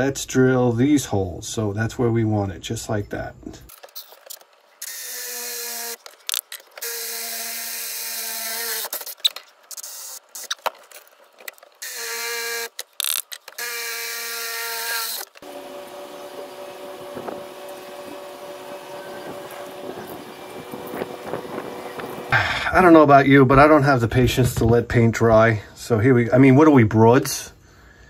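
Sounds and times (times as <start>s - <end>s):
drill boring through steel: 4.8s - 9.1s, 11.8s - 22.3s
sharp metallic clicks: 12.6s - 13.8s.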